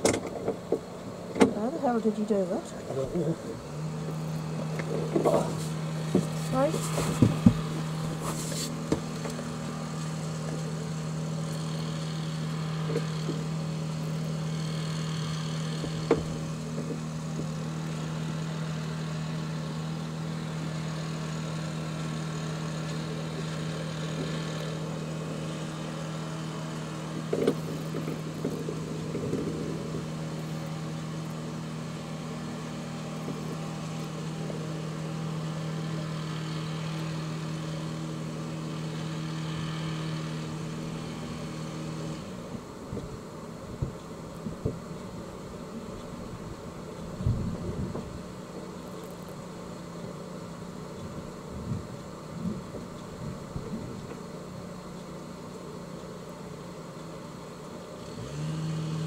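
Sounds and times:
boat engine idling: 0.0 - 58.1.

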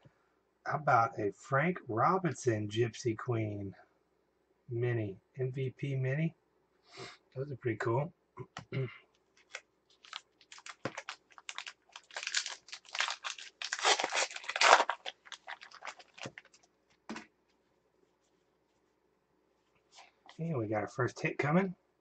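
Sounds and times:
foil wrapper tearing and crinkling: 9.4 - 16.6.

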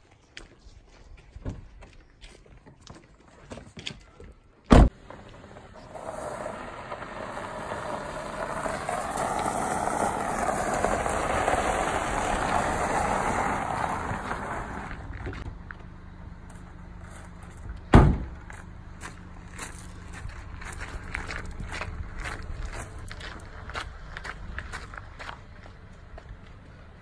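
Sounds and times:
car door shutting: 4.7 - 5.3, 17.9 - 18.4
tyres crunching on gravel: 4.9 - 27.0.

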